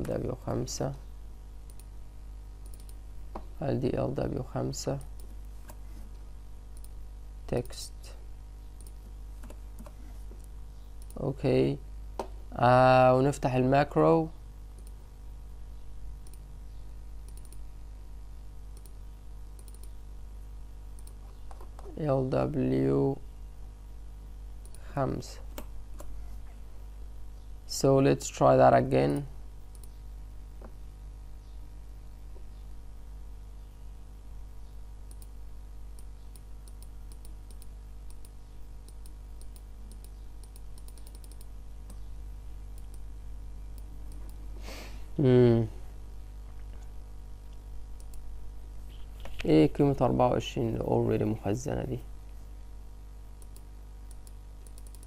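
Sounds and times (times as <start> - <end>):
low electrical hum: 0.0 - 55.0
computer mouse clicking: 1.7 - 1.9, 2.6 - 3.5, 6.7 - 7.0, 8.8 - 11.2, 14.8 - 15.0, 17.3 - 17.6, 18.8 - 19.0, 19.6 - 20.0, 21.0 - 21.9, 29.7 - 30.0, 35.1 - 35.4, 36.0 - 42.1, 47.5 - 48.2, 53.4 - 55.0.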